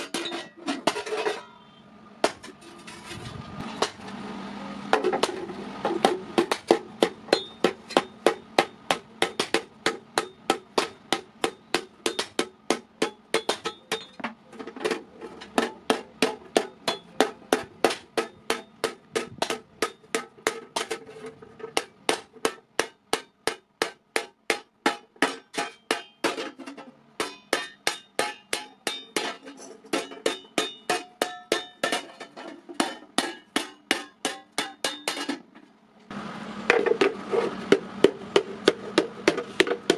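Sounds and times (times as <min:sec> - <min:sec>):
hammer ringing on iron plate: 0:06.4 - 0:14.2, 0:15.6 - 0:21.0, 0:21.8 - 0:26.6, 0:27.2 - 0:35.4.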